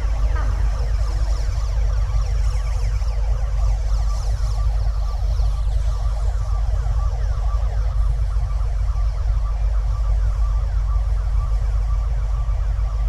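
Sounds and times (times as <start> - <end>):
deep earthquake rumble: 0.0 - 3.7.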